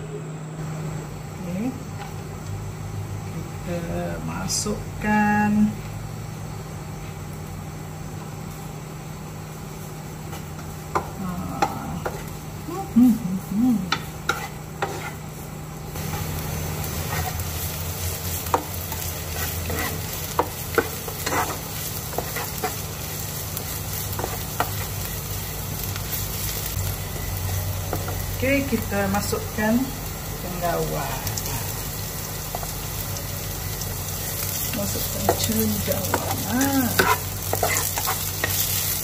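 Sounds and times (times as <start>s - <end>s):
food sizzling in hot oil: 1.6s - 39.0s
spatula scraping wok: 9.7s - 12.6s, 13.8s - 30.6s, 33.7s - 39.0s.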